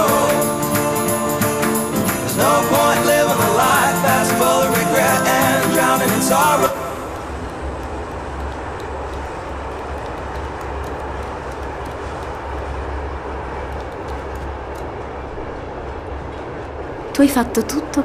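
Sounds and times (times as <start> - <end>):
moving train rumble: 0.0 - 18.0.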